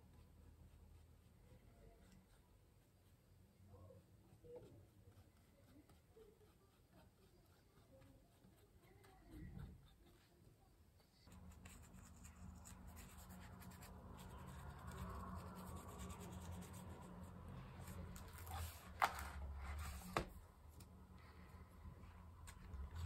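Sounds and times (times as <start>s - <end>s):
paintbrush scratching on paper: 0.0s - 20.3s
low steady hum: 10.9s - 23.0s.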